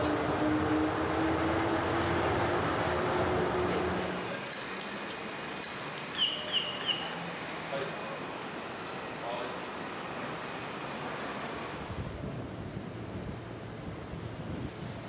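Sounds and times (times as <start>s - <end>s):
train rumble with motor whine: 0.0s - 5.5s.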